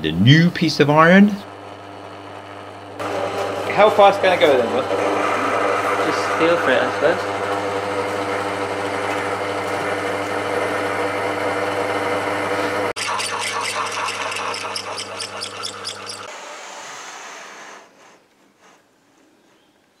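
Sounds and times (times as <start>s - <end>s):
lathe motor humming: 1.4s - 16.5s
cutting tool boring metal: 1.5s - 16.9s.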